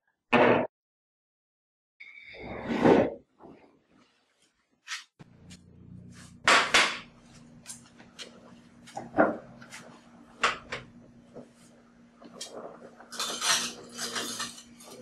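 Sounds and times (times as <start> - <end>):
low steady hum: 5.2 - 15.0.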